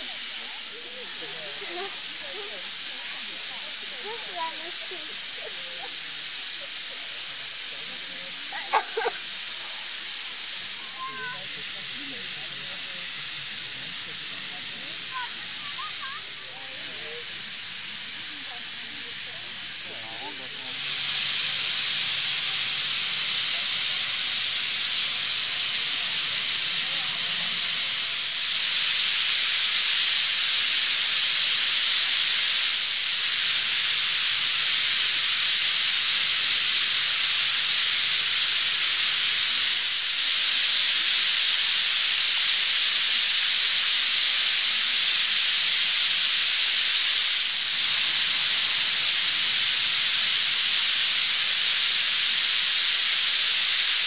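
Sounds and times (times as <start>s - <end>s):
flock of birds chattering: 0.0s - 17.4s.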